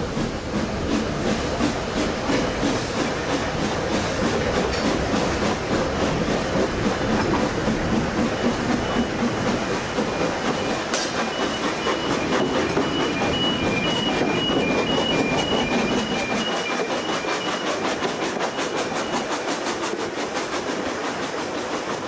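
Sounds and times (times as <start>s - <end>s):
train rumble: 0.0s - 22.0s.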